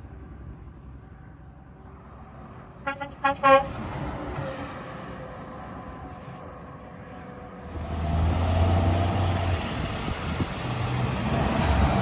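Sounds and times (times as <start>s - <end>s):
truck engine and tyre noise: 0.0s - 12.0s
truck air horn blasts: 2.8s - 3.8s.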